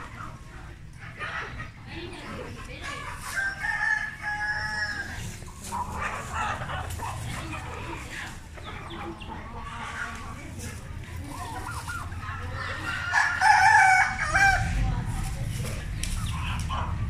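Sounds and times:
chickens clucking: 0:00.0 - 0:17.0
rooster crowing: 0:03.4 - 0:05.2, 0:12.9 - 0:14.8.

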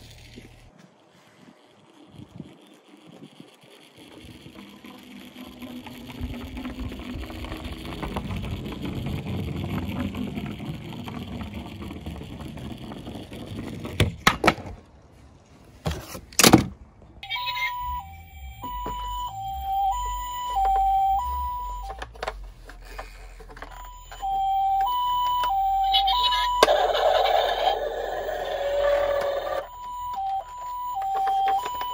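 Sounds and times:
plastic wheels rolling on wood: 0:00.0 - 0:15.1, 0:17.2 - 0:31.9
electronic hi-lo siren: 0:02.3 - 0:13.1, 0:17.2 - 0:31.9.

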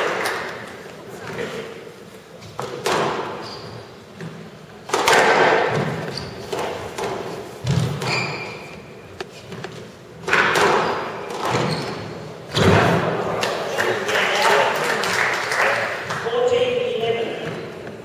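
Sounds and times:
squash ball hits echoing: 0:02.6 - 0:03.4, 0:04.8 - 0:08.4, 0:10.2 - 0:13.6.

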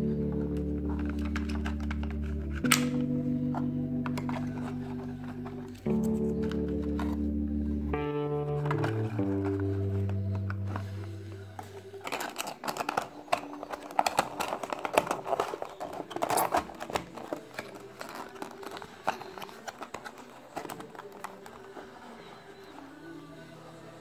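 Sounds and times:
cardboard box clicks and rustles: 0:11.6 - 0:22.0.

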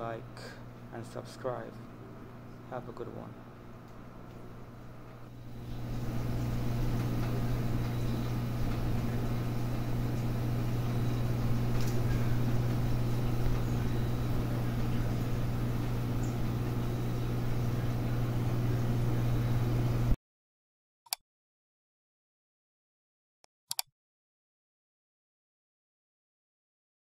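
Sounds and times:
aquarium pump humming: 0:00.0 - 0:20.2.

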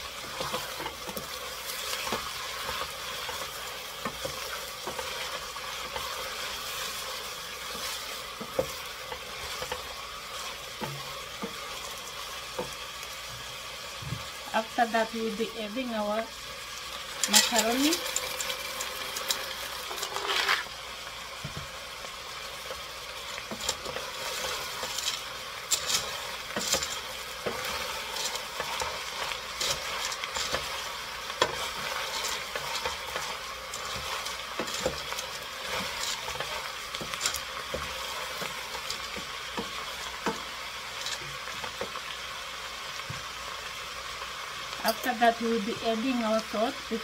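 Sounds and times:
vegetables sizzling in oil: 0:00.0 - 0:47.0
wooden spoon scraping pot: 0:00.2 - 0:12.8, 0:17.2 - 0:20.7, 0:22.7 - 0:42.0.

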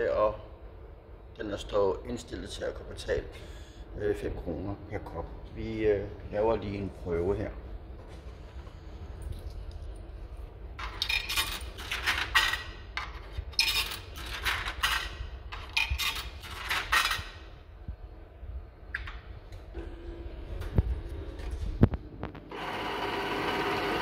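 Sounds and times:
coins clinking through coin slot: 0:10.8 - 0:17.4.

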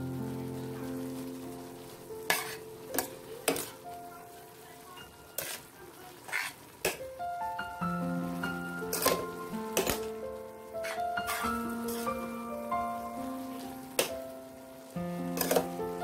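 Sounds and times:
soft background music: 0:00.0 - 0:16.0
noodles scraped in steel pot: 0:02.3 - 0:03.7, 0:05.4 - 0:07.0, 0:10.8 - 0:12.2, 0:15.4 - 0:15.8.

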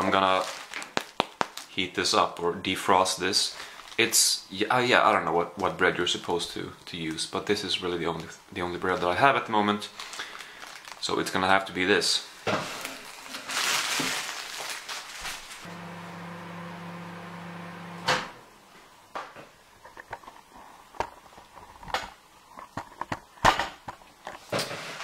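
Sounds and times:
microwave click: 0:15.7 - 0:18.4
microwave oven humming: 0:15.7 - 0:18.6.

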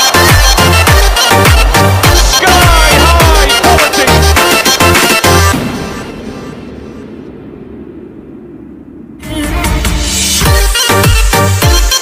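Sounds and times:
electronic dance music: 0:00.0 - 0:07.1, 0:09.3 - 0:12.0
muffled bass-heavy music: 0:00.0 - 0:07.3, 0:09.2 - 0:12.0.

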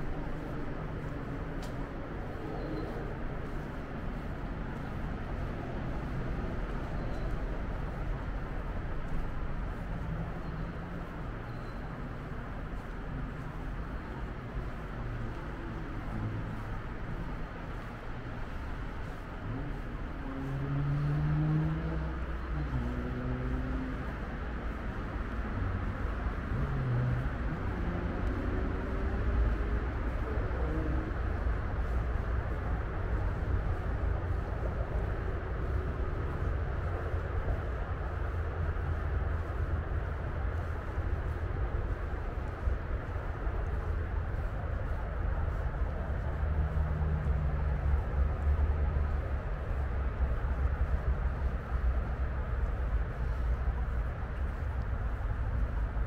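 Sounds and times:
distant road traffic rumble: 0:00.0 - 0:56.0
faint passing engines: 0:12.8 - 0:56.0.

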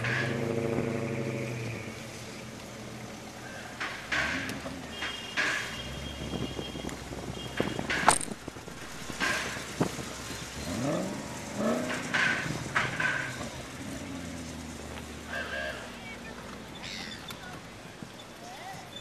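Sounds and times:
car engine revving: 0:00.0 - 0:17.0
car engines idling: 0:00.0 - 0:19.0
people's voices: 0:15.2 - 0:19.0.

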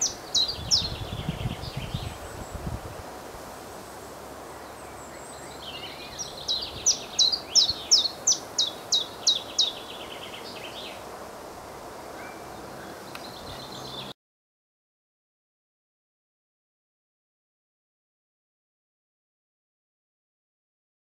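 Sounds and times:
wind noise: 0:00.0 - 0:03.8.

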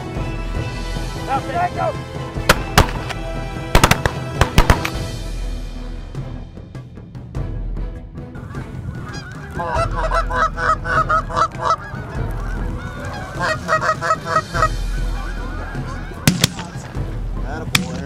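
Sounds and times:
geese honking: 0:08.4 - 0:18.0.

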